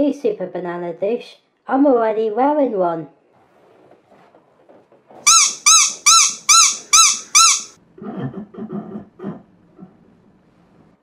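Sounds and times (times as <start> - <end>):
high-pitched squeaks: 5.3 - 7.8.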